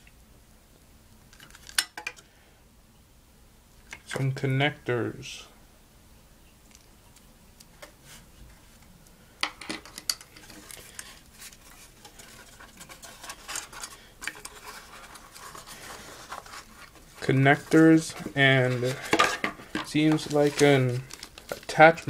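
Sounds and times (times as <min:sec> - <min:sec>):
cardboard packaging handled: 0:10.4 - 0:22.0.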